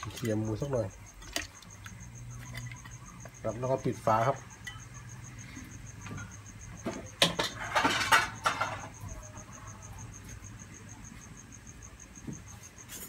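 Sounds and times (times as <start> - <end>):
cricket chirping: 0.0 - 13.0
clatter of knocks and rustling: 6.0 - 9.0.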